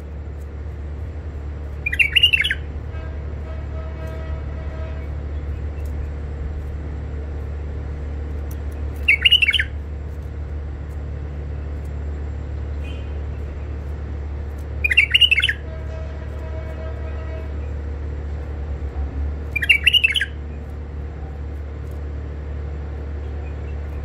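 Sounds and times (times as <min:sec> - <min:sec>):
steady low hum: 0:00.0 - 0:24.0
bird warbling call notes: 0:01.8 - 0:02.7, 0:09.0 - 0:09.8, 0:14.8 - 0:15.7, 0:19.5 - 0:20.4.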